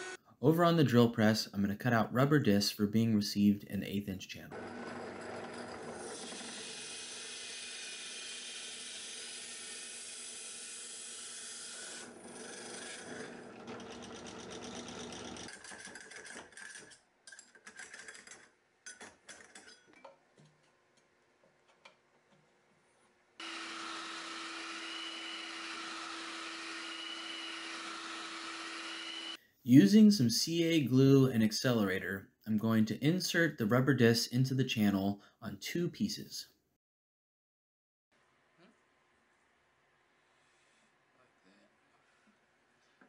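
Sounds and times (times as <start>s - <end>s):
spindle sander running: 4.6s - 10.0s, 12.0s - 15.5s, 23.4s - 29.4s
drill press cutting rubber: 4.6s - 16.9s, 23.4s - 29.4s.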